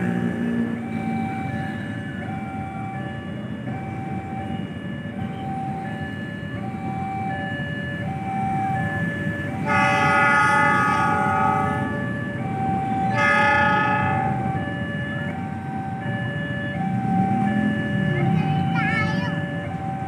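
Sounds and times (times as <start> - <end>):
train horn blasts: 9.6 - 11.8, 13.2 - 14.4.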